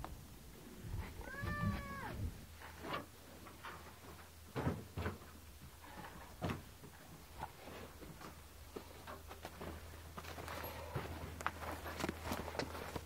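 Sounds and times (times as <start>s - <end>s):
cow hooves on dirt: 3.5s - 13.0s
footsteps on straw and dirt: 6.9s - 13.0s.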